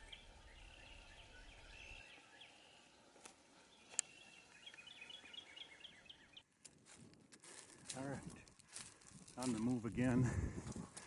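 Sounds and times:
faint songbirds chirping: 0:00.0 - 0:10.2.

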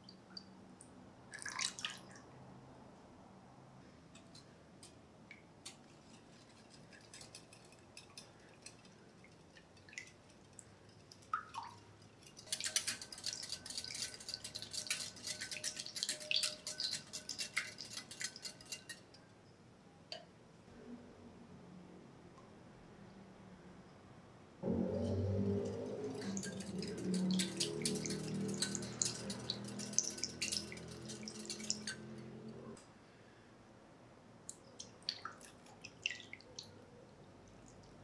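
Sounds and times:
whisk clicking against glass bowl: 0:06.4 - 0:19.1, 0:26.1 - 0:32.2.

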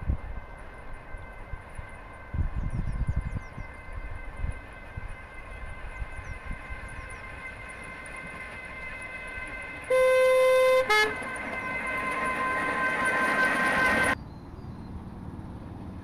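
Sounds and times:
miniature locomotive electric whine: 0:00.0 - 0:14.2
locomotive horn toot: 0:09.8 - 0:12.7.

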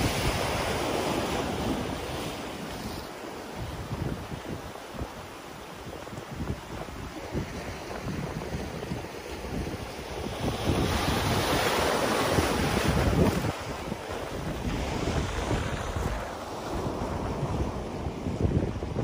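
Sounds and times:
ocean surf against rock: 0:00.0 - 0:19.0
wind buffeting microphone: 0:00.0 - 0:19.0
wave breaking: 0:05.9 - 0:19.0.

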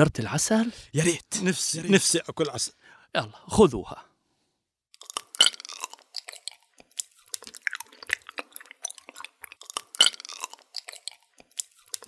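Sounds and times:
smacking and chewing mouth noises: 0:05.0 - 0:12.0.

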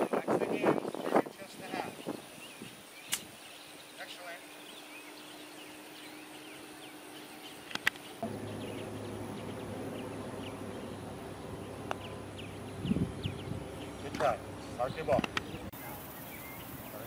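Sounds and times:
small birds chirping: 0:00.0 - 0:17.0
steady low hum: 0:02.2 - 0:17.0
sharp click: 0:03.1 - 0:03.3, 0:07.6 - 0:08.1, 0:15.1 - 0:15.5.

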